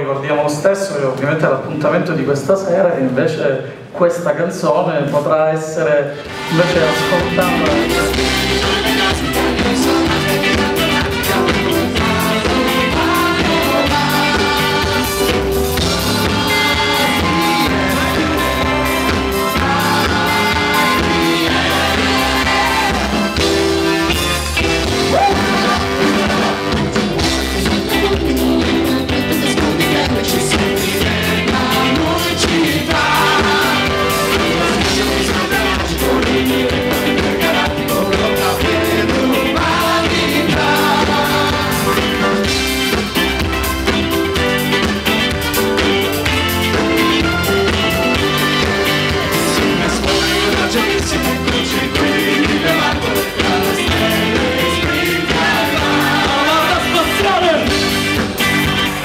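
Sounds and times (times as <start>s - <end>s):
live band playing: 5.1s - 59.0s
electric guitar: 6.1s - 59.0s
group singing together: 6.3s - 24.2s, 25.0s - 42.8s, 46.8s - 57.9s.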